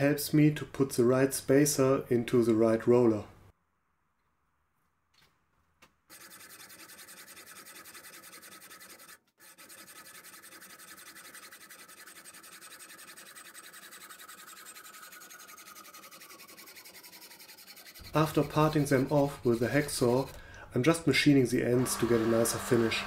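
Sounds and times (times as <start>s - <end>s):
hacksaw cutting metal tube: 6.1s - 20.6s, 21.7s - 23.0s.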